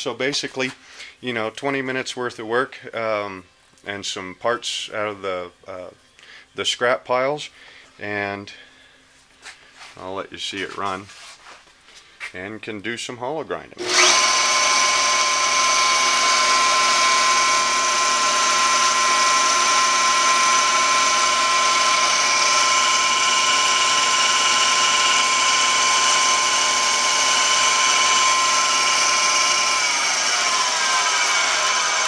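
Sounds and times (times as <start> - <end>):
belt grinder whining: 13.8 - 32.0.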